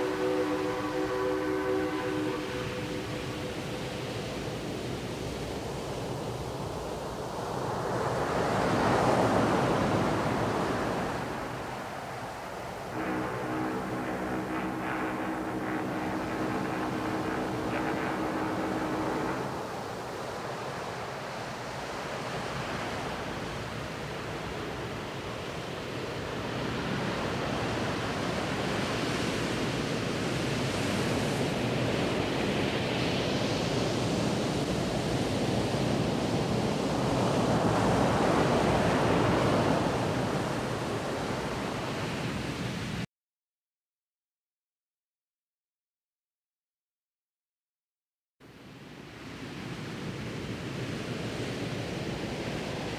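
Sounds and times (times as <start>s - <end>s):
wind on microphone: 0.0s - 6.9s, 12.8s - 20.8s
sea surf washing in: 0.0s - 43.0s.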